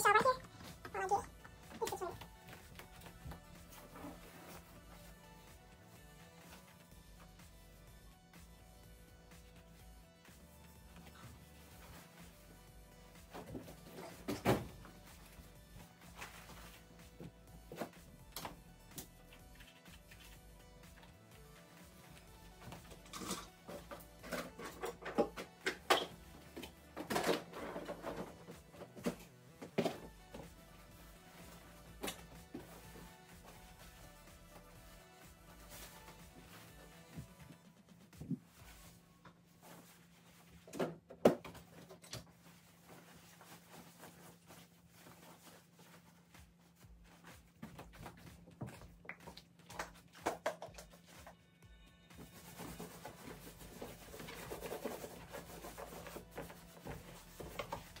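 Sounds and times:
cloth rustling: 42.3 - 49.0.

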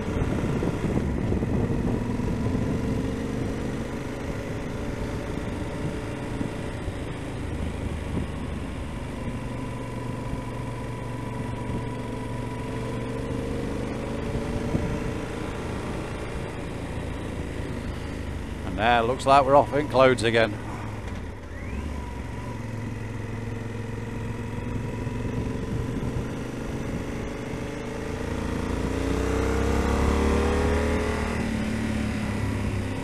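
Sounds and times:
rushing wind noise: 0.0 - 9.4, 13.4 - 16.9, 24.7 - 27.8
motorcycle engine cruising: 0.0 - 33.0.

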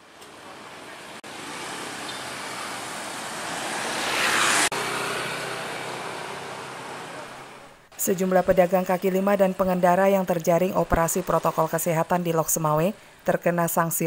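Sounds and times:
passing vehicles hiss: 0.0 - 8.0.

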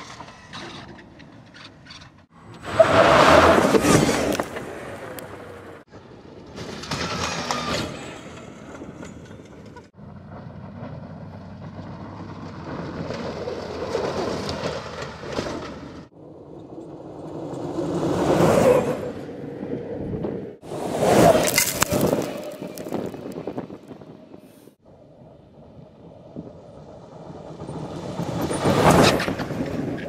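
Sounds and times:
electric buggy driving: 0.0 - 30.0
tyres and gravel rushing: 6.5 - 16.1, 20.6 - 24.4.

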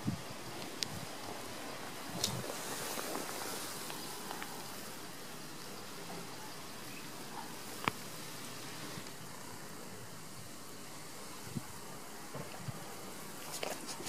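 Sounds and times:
outdoor background hiss: 0.0 - 14.0
faint ticks: 2.2 - 4.7, 7.3 - 8.1.

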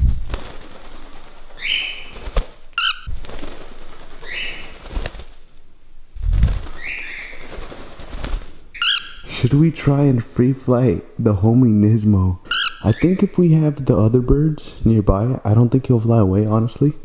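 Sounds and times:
wing flapping: 0.0 - 9.1
parrot chirping: 1.6 - 3.1, 4.2 - 4.8, 6.7 - 7.5, 8.7 - 9.3, 12.4 - 13.3
parrot warbling call: 2.8 - 3.1, 8.8 - 9.3, 12.5 - 13.0.

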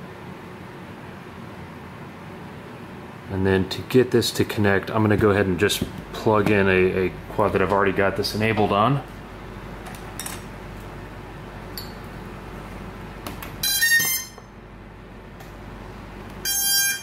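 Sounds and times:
steady low hum: 0.0 - 17.0
buzzy electronic beeps: 13.6 - 14.5, 16.4 - 17.0.

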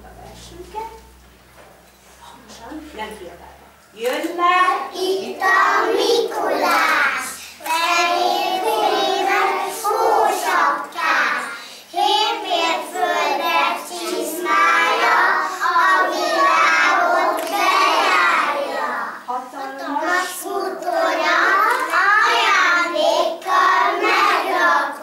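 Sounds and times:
children singing in unison: 5.0 - 19.2, 20.0 - 25.0.

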